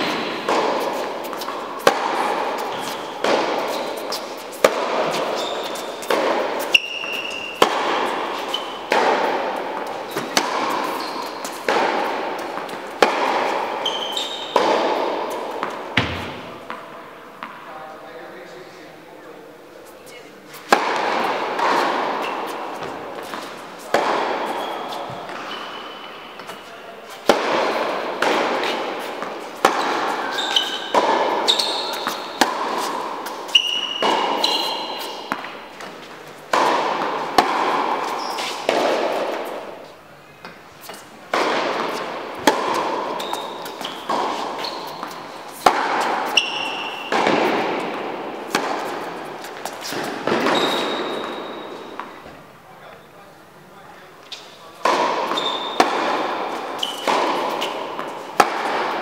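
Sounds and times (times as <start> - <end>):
shoe squeaks: 0.0 - 9.0, 9.8 - 12.8, 13.5 - 16.9, 21.6 - 27.3, 28.6 - 36.1, 38.0 - 38.7, 41.9 - 47.3, 48.8 - 52.3, 54.2 - 58.3
tennis balls bouncing: 0.0 - 17.7, 20.1 - 52.5, 54.2 - 59.0
tennis balls hit by rackets: 0.0 - 17.7, 20.5 - 52.6, 54.2 - 59.0.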